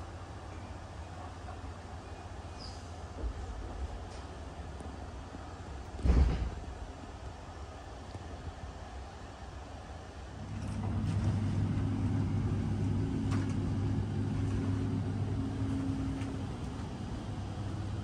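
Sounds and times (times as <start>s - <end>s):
train carriage ventilation hum: 0.0s - 18.0s.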